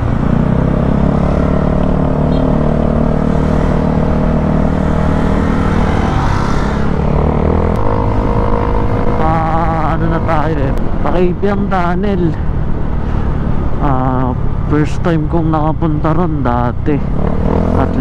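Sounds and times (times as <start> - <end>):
motorcycle engine running: 0.0 - 5.8.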